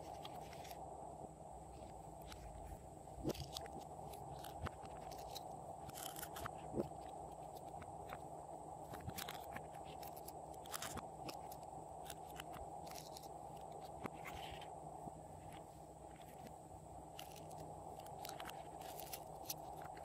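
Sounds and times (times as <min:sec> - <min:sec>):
low background hum: 0:00.0 - 0:20.0.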